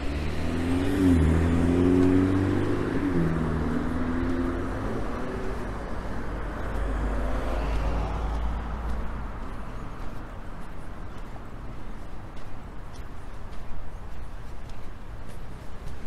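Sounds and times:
vehicle passing close: 0.0s - 9.0s
road noise: 0.0s - 16.0s.

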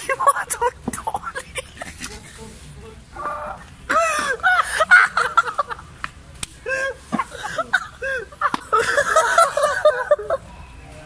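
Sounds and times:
young people laughing and shrieking: 3.2s - 5.8s, 6.6s - 10.4s.

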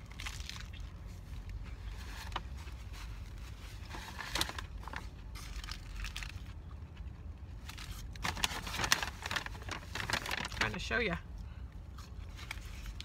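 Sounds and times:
lettuce crunching while chewing: 0.0s - 2.6s, 3.2s - 10.6s.

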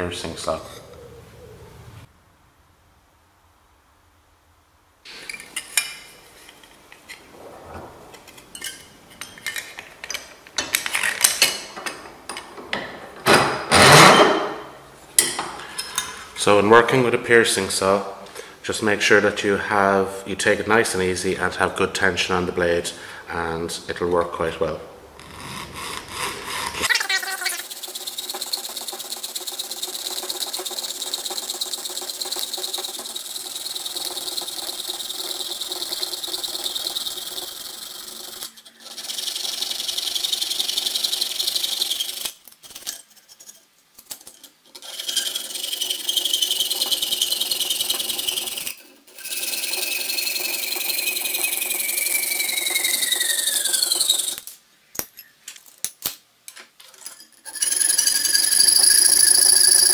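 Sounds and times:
saw cutting sheet metal: 27.6s - 42.3s, 44.8s - 54.4s, 57.5s - 59.9s
high ringing note sliding down: 57.5s - 59.9s.

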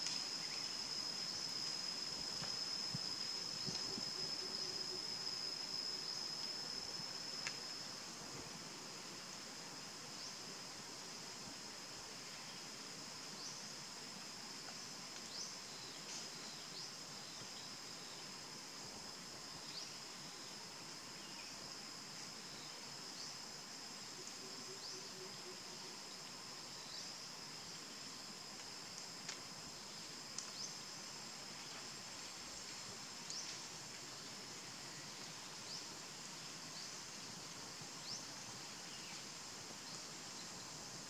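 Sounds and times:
high-pitched insect drone: 0.0s - 8.2s.

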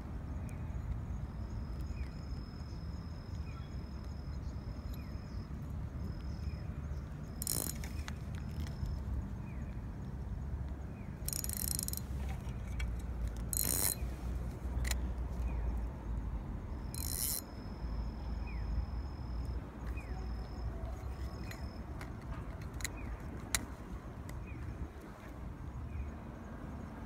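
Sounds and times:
fishing reel whirring: 7.4s - 8.8s, 11.2s - 12.1s, 13.4s - 14.1s, 16.8s - 18.0s
mechanical clicks: 7.4s - 8.9s, 11.3s - 14.0s, 17.0s - 17.5s.

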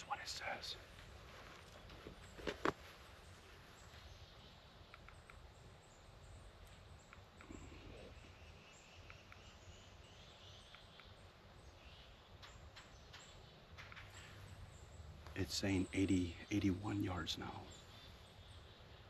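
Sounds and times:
soft ticks: 4.9s - 5.5s, 6.6s - 7.7s.

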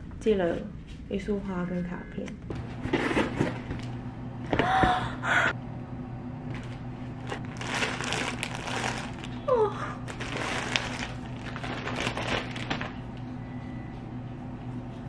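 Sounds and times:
steady low hum: 0.0s - 15.0s
plastic bag crinkling: 6.6s - 13.1s
cardboard box rustling: 7.2s - 9.3s, 10.1s - 12.9s.

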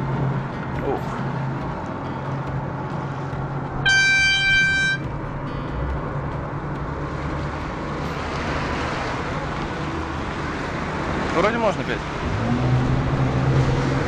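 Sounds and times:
wind: 0.0s - 14.0s
horn blowing: 3.8s - 5.2s.

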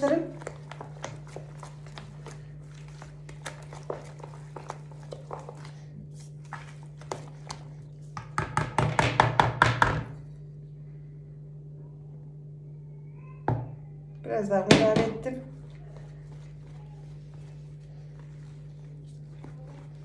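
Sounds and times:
whisk beating dough in bowl: 0.0s - 10.0s, 15.5s - 20.0s.

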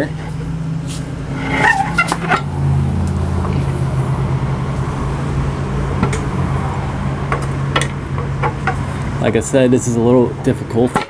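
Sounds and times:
low hum: 0.1s - 9.2s
metal knocks and clunks: 1.3s - 2.5s.

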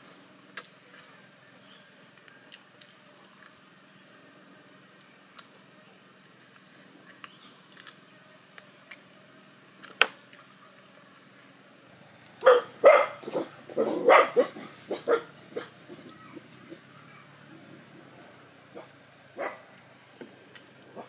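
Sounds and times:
dog barking: 12.4s - 16.0s, 18.7s - 19.7s.

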